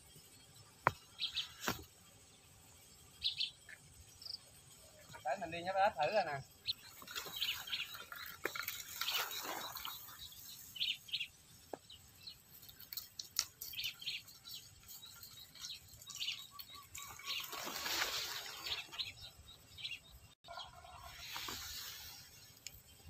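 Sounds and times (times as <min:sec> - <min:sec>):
small birds chirping: 0:00.0 - 0:23.0
rustling noise: 0:17.3 - 0:19.0, 0:21.0 - 0:22.7.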